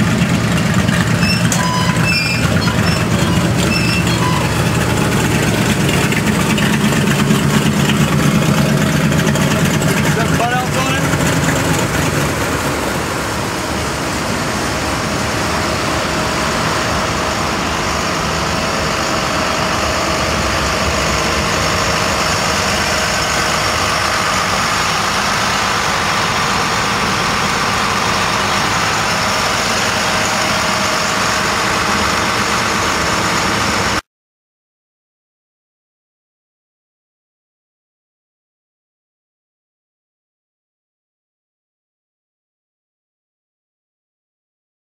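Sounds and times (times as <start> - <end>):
vehicle engine idling: 0.0 - 34.0.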